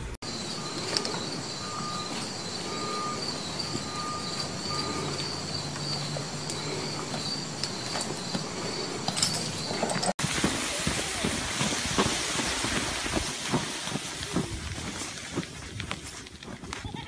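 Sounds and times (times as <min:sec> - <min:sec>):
high-pitched whine: 0:00.0 - 0:08.4
short electronic beeps: 0:00.5 - 0:06.1.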